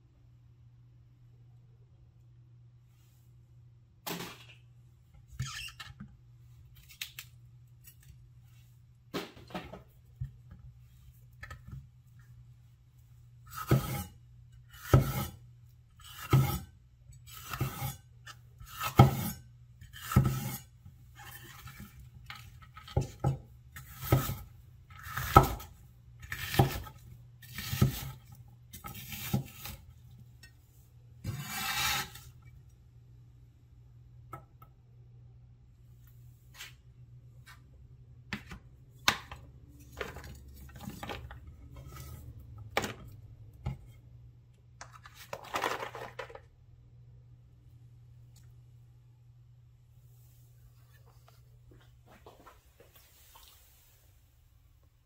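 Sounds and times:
blade scraping across board: 31.2s - 32.3s.

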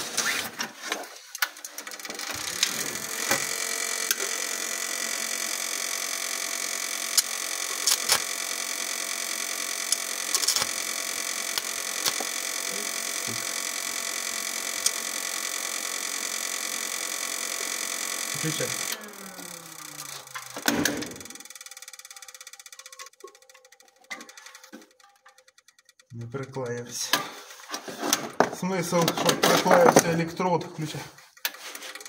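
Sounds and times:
welding arc crackles: 1.4s - 21.5s
welder humming: 1.4s - 27.5s.

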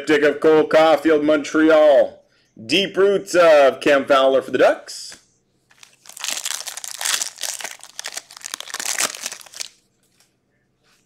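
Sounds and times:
foil wrapper tearing and crinkling: 5.7s - 9.8s.

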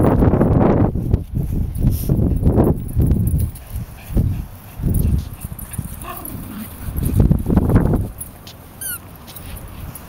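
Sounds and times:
dogs playing: 1.7s - 10.0s
dog whining: 8.8s - 9.0s.

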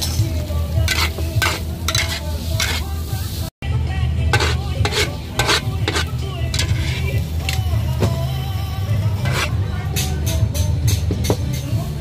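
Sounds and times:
food sizzling in a pan: 0.0s - 3.6s, 4.3s - 9.5s
metal spatula scraping pan: 0.8s - 2.9s, 4.3s - 7.6s, 9.1s - 9.6s.

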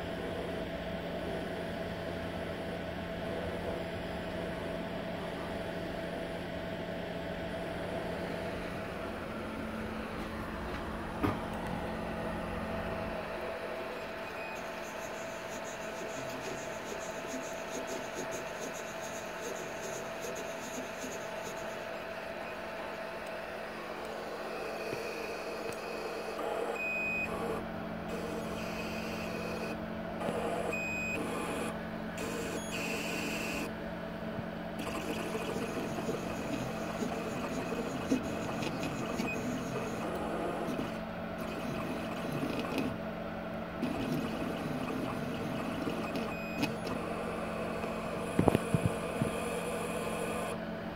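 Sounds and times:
stepper motor electrical hum: 0.0s - 50.7s
short high motor whines: 24.4s - 33.7s.

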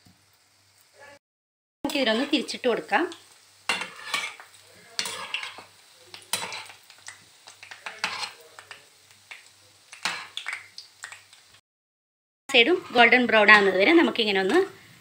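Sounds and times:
oil sizzling: 0.0s - 1.2s, 1.9s - 11.6s, 12.5s - 15.0s
metal spoon scraping frying pan: 1.9s - 2.6s, 3.7s - 5.7s, 6.3s - 6.8s, 7.8s - 8.4s, 12.5s - 14.8s.

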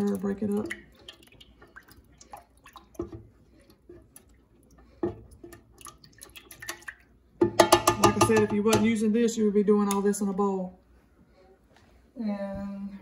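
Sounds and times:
utensil stirring egg in pan: 0.0s - 9.0s
utensil tapping pan: 7.4s - 9.1s.

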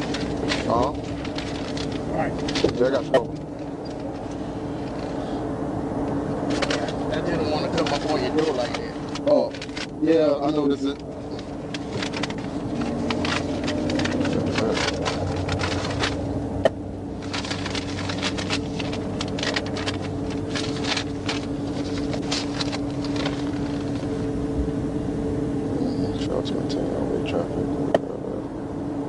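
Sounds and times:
idling car interior hum: 0.0s - 29.0s
clicking and rustling: 10.8s - 16.2s.

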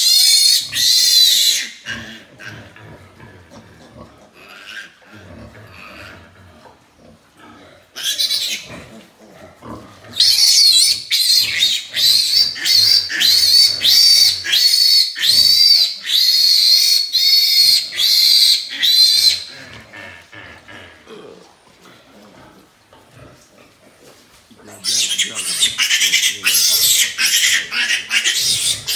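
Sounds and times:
piglet squealing loudly: 0.0s - 2.2s, 8.0s - 8.7s, 10.1s - 19.5s, 24.8s - 28.9s.

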